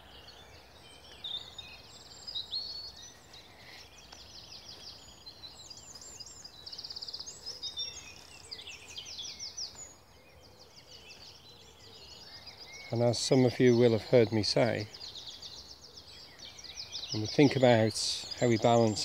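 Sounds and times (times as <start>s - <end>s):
songbirds singing: 0.0s - 19.0s
loud bird trill: 4.4s - 19.0s.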